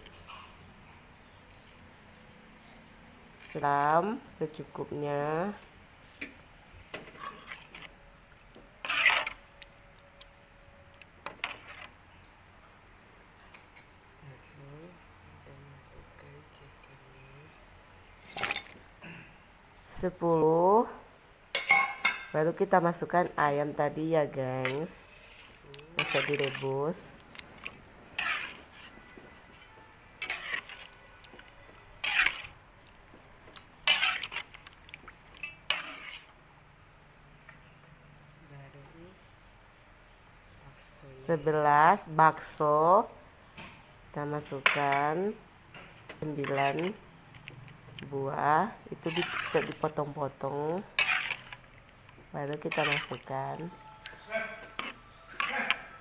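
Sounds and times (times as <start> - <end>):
broth simmering: 3.3 - 20.7, 21.3 - 43.5, 44.1 - 56.0
metal spatula scraping wok: 6.9 - 9.9, 11.2 - 12.2, 21.6 - 36.4, 44.4 - 56.0.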